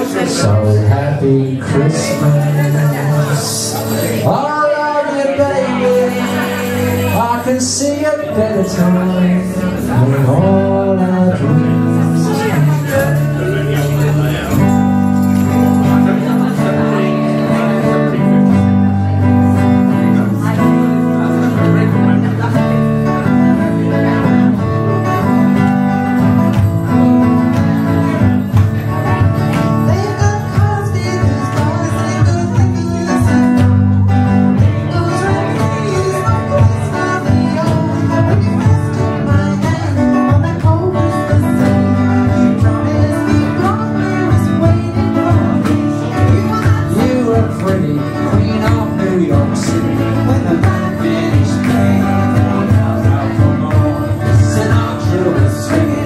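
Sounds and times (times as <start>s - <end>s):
person singing: 0.0s - 26.9s, 27.6s - 56.0s
electric guitars playing: 0.0s - 56.0s.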